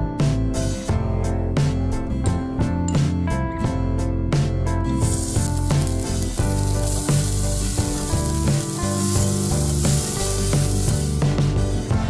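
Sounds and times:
guitar music: 4.6s - 12.0s
onions sizzling in a saucepan: 4.9s - 11.8s.

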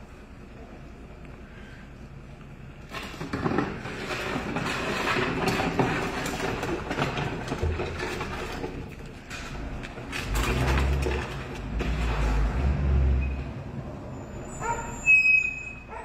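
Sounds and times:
garbage truck engine running: 2.6s - 14.3s
mechanical clattering and rattling: 2.9s - 12.6s.

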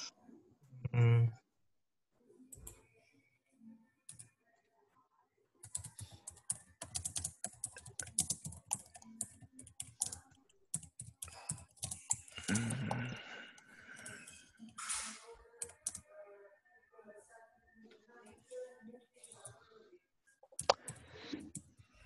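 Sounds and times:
computer keyboard typing: 4.1s - 4.3s, 5.6s - 13.1s, 15.6s - 16.0s, 20.6s - 21.8s.

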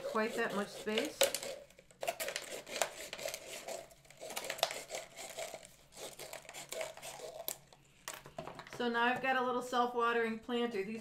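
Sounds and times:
scissors snipping plastic: 0.0s - 7.6s
plastic crinkling: 0.8s - 8.3s.

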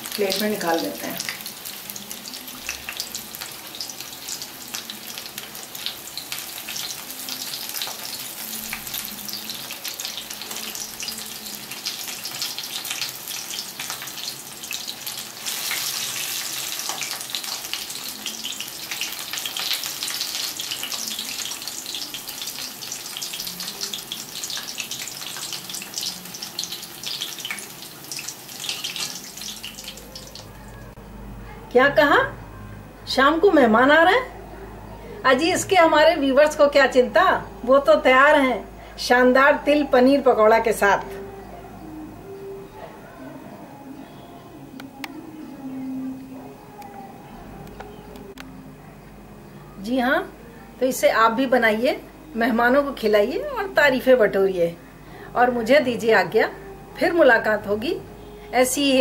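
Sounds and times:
food deep-frying in oil: 0.0s - 30.6s.

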